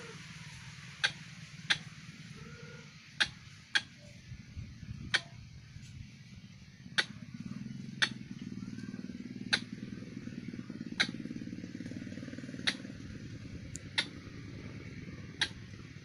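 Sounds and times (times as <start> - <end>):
low steady hum: 0.0 - 16.0
sharp clicks: 3.2 - 4.0, 7.0 - 7.2, 8.0 - 8.2, 9.5 - 9.8, 11.0 - 11.3, 12.6 - 13.0, 13.7 - 14.3, 15.4 - 15.7.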